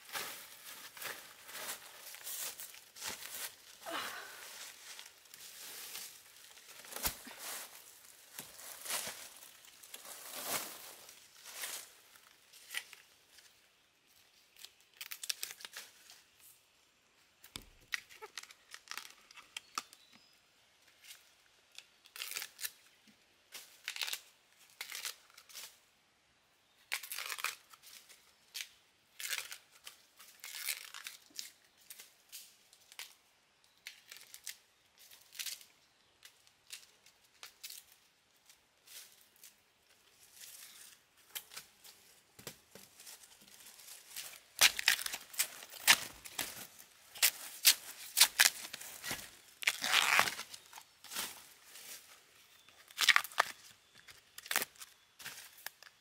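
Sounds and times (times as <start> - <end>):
husk tearing and crinkling: 0.0 - 13.0, 14.5 - 15.9, 17.9 - 20.0, 21.8 - 22.8, 23.8 - 25.6, 26.9 - 27.8, 28.5 - 32.0, 42.8 - 56.0.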